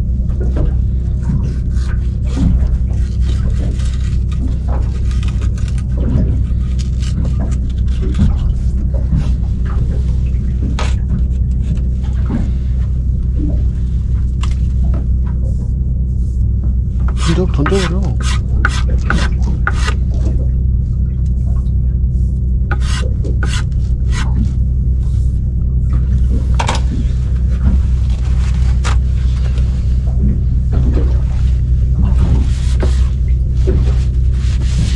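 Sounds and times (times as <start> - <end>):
low engine hum: 0.0 - 34.9
knife scraping and slicing fish: 1.4 - 9.4, 10.6 - 11.9, 17.1 - 20.0, 22.7 - 24.6, 28.0 - 29.7, 32.1 - 34.9.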